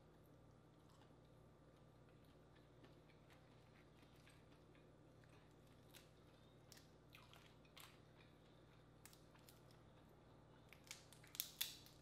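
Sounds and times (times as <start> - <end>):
crawfish shells cracking: 10.7 - 12.0.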